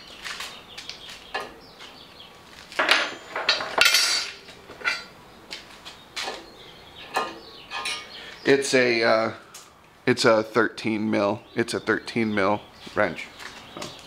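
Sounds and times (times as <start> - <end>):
metal wrenches clinking: 2.8 - 5.1, 7.1 - 8.1.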